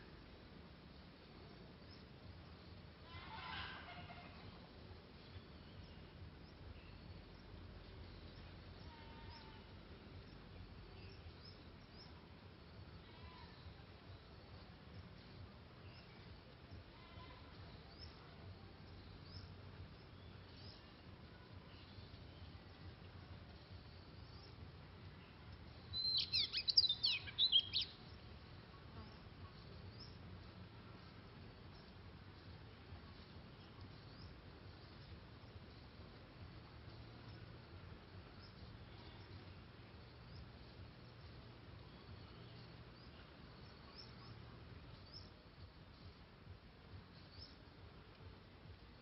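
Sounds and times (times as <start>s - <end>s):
low background rumble: 0.0s - 49.0s
small birds chirping: 0.0s - 49.0s
bird singing whistled notes: 25.2s - 28.3s, 38.3s - 45.4s.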